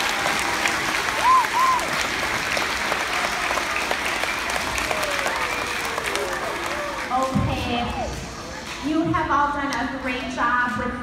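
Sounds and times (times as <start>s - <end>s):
children clapping: 0.0s - 7.3s.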